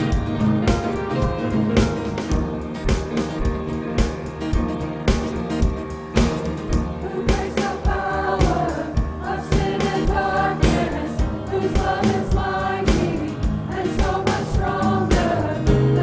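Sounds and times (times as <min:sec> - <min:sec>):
instrumental accompaniment: 0:00.0 - 0:16.0
steady beat: 0:00.0 - 0:16.0
choir singing: 0:06.7 - 0:16.0.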